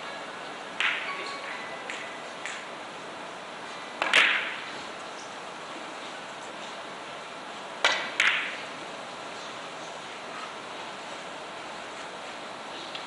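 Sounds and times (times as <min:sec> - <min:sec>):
billiard balls clacking: 0:00.8 - 0:02.7.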